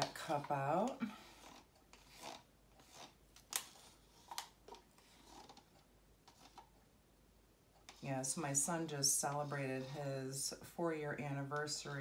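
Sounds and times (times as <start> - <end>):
tool scraping inside plastic cup: 0.0 - 6.7.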